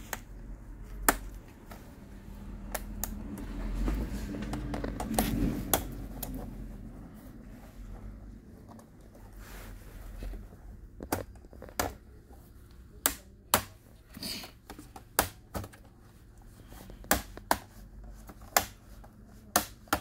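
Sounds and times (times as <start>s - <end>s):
sharp plastic clicks: 2.6s - 3.5s.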